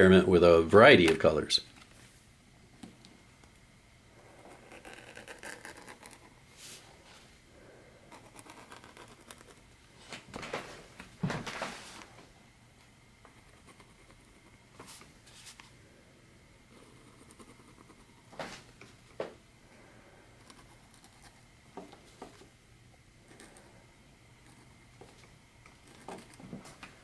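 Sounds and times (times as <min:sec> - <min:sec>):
pen nib scratching on paper: 0:04.2 - 0:06.4, 0:08.1 - 0:09.7, 0:13.3 - 0:14.6, 0:16.7 - 0:18.3, 0:20.4 - 0:22.5, 0:23.2 - 0:23.7, 0:24.4 - 0:26.4.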